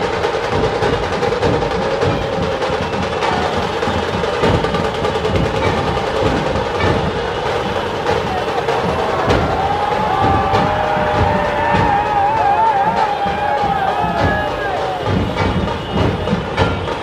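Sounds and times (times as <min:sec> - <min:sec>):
barrel drums beating: 0:00.0 - 0:17.0
fast snare drum rolls: 0:00.0 - 0:17.0.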